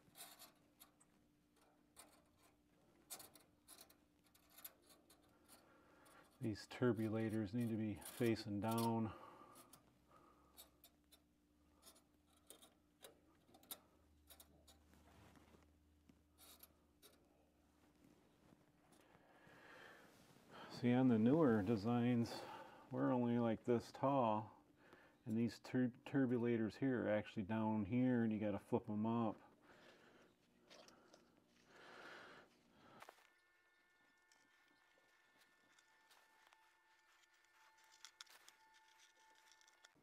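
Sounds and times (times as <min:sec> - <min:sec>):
clicks and scraping of metal parts: 0:00.0 - 0:09.9, 0:10.5 - 0:15.1, 0:16.2 - 0:17.4, 0:34.2 - 0:40.0
low steady hum: 0:00.0 - 0:40.0.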